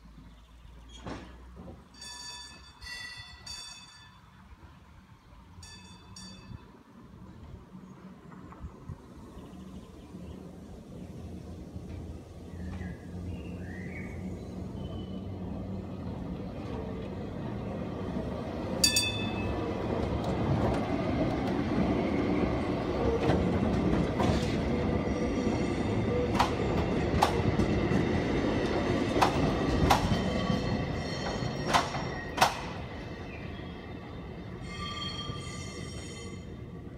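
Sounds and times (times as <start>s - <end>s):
tram wheels rumbling on rail: 0.2s - 36.9s
short metallic ring: 18.8s - 19.5s.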